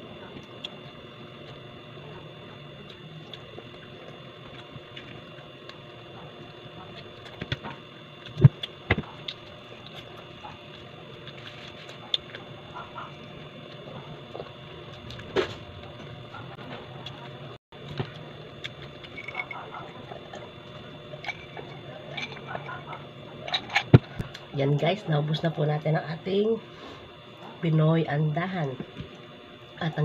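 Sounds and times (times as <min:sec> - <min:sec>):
person chewing: 0:08.2 - 0:17.2.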